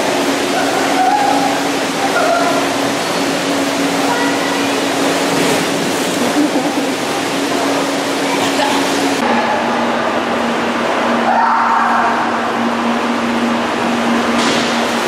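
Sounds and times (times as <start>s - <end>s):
water gushing into pool: 0.0s - 9.2s.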